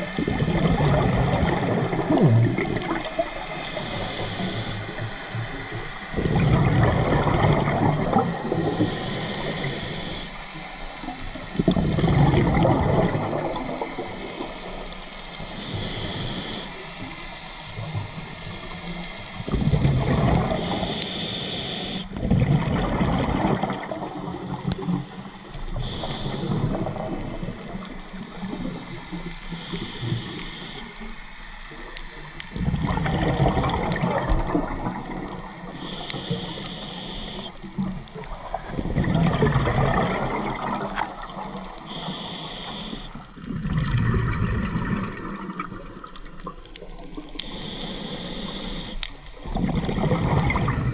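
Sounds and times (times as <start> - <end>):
bubbles on exhale: 0.0 - 5.1, 5.8 - 10.2, 11.5 - 14.8, 19.4 - 21.0, 22.1 - 30.4, 32.5 - 36.6, 37.3 - 42.2, 43.0 - 47.7, 49.4 - 50.9
regulator hiss on inhale: 3.0 - 6.2, 8.4 - 11.6, 13.8 - 19.8, 20.4 - 22.2, 25.5 - 27.4, 28.2 - 31.4, 35.6 - 37.8, 41.6 - 43.5, 47.1 - 49.4.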